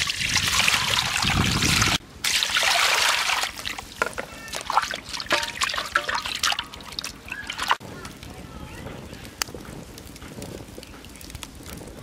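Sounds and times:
water pouring and splashing: 0:00.0 - 0:07.8
water sloshing in a basin: 0:00.0 - 0:07.8.

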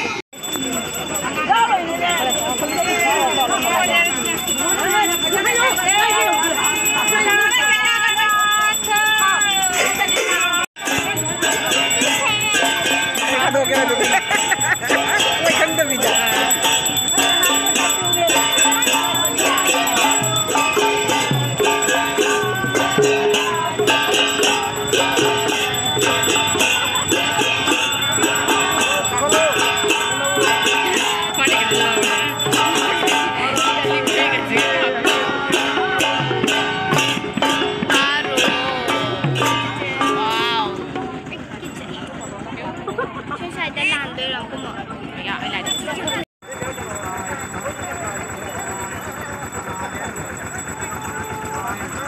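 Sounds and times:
hand cymbals clashing: 0:02.0 - 0:42.4
group of voices singing: 0:10.9 - 0:40.7.

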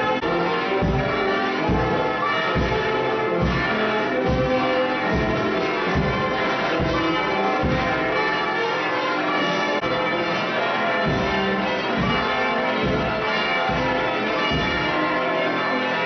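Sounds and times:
church bells pealing: 0:00.0 - 0:16.0.

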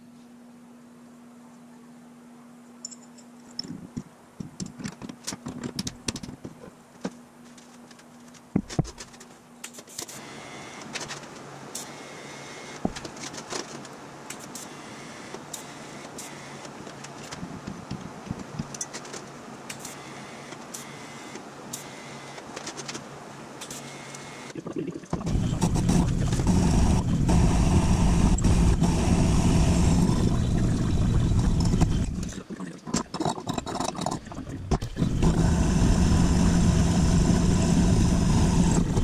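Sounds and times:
welder electrical hum: 0:00.0 - 0:39.0
welding arc crackling: 0:23.6 - 0:39.0.

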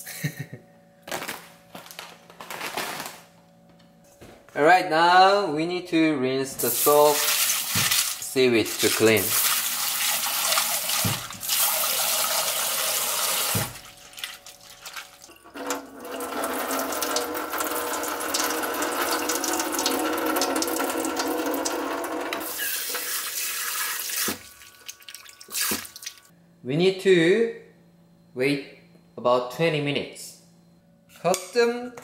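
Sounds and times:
wet hand rinsing: 0:06.6 - 0:21.0, 0:22.4 - 0:26.3
water pouring into sink: 0:06.7 - 0:26.3
tap water splashing into bowl: 0:24.2 - 0:26.2.

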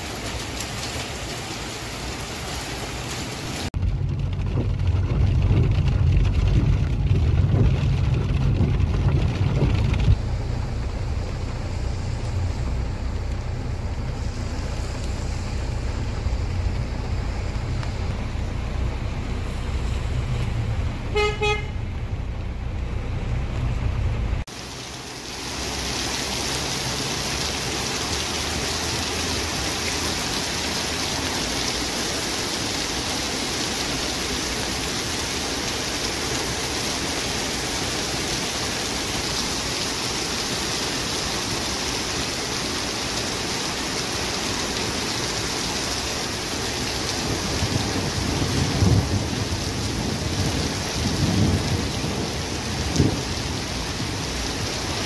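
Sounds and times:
heavy rain on paving stones: 0:00.0 - 0:55.0
low rumble: 0:03.8 - 0:24.5
car horn: 0:21.1 - 0:21.9.

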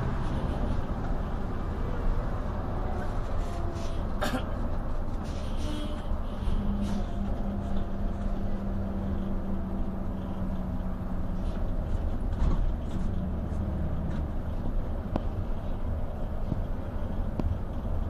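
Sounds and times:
diesel engine and road rumble: 0:00.0 - 0:18.0.

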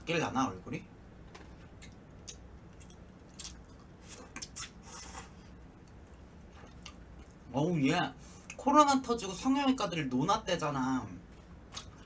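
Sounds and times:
chewing: 0:01.4 - 0:05.3, 0:05.9 - 0:07.4, 0:11.3 - 0:12.0.

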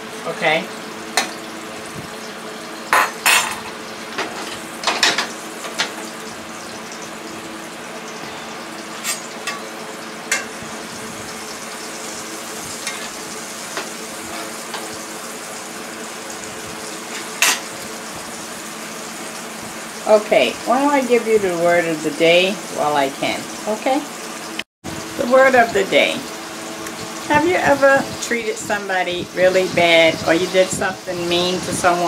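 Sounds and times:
fish sizzling in oil: 0:00.0 - 0:32.0
utensils set down on counter: 0:02.9 - 0:05.3.

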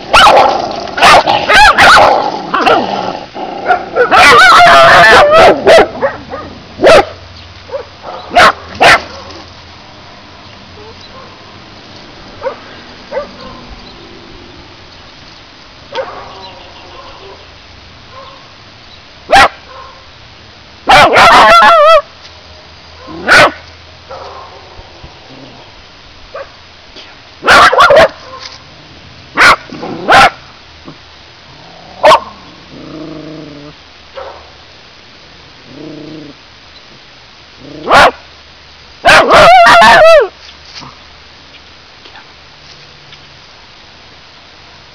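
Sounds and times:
dog barking: 0:00.1 - 0:02.8, 0:03.6 - 0:09.3, 0:10.8 - 0:11.4, 0:12.4 - 0:13.7, 0:15.9 - 0:17.4, 0:18.1 - 0:18.4, 0:19.3 - 0:20.0, 0:20.9 - 0:22.0, 0:23.0 - 0:24.6, 0:26.3 - 0:26.6, 0:27.4 - 0:28.6, 0:29.4 - 0:30.4, 0:32.0 - 0:32.3, 0:34.2 - 0:34.5, 0:37.8 - 0:38.2, 0:39.0 - 0:40.3.

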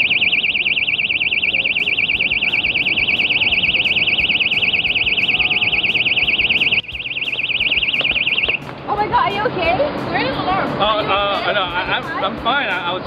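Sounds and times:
electronic alarm siren warbling: 0:00.0 - 0:08.7.

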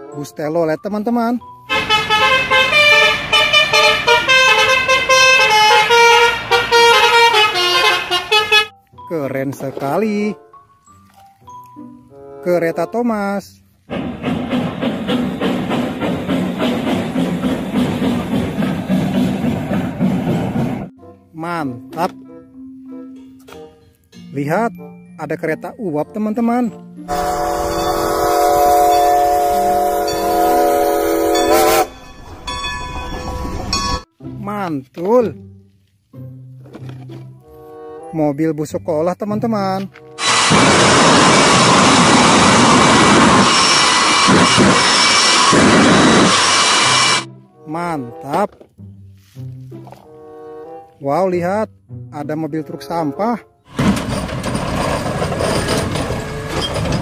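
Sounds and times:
steam locomotive whistle: 0:01.7 - 0:08.7, 0:27.1 - 0:32.1, 0:40.2 - 0:47.3
multi-tone musical bus horn: 0:01.7 - 0:08.8, 0:27.1 - 0:32.0, 0:40.2 - 0:47.6, 0:50.2 - 0:50.9
steam hissing: 0:40.2 - 0:47.3.

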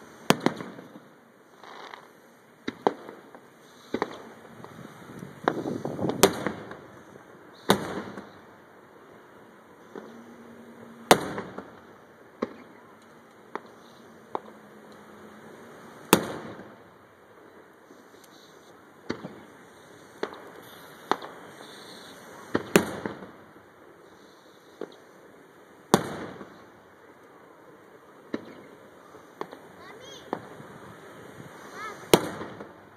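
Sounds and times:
firework shells bursting: 0:00.2 - 0:08.6, 0:16.0 - 0:27.3, 0:31.6 - 0:32.9.

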